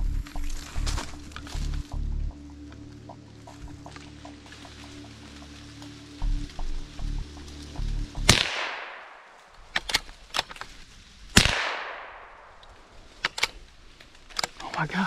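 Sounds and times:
gunshot echo through woods: 8.2s - 10.5s, 11.3s - 13.4s
rifle shots: 8.3s - 10.1s, 11.3s - 13.6s.

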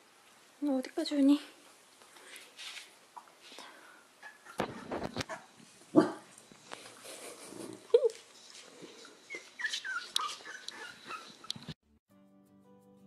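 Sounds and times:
puppies whimpering: 8.9s - 11.7s
puppy yelp: 9.3s - 11.8s.

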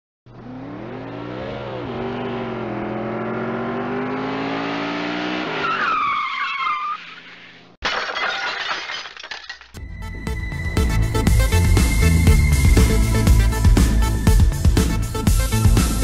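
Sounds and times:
car engine revving: 0.3s - 5.7s
tyres screeching: 5.5s - 7.7s.

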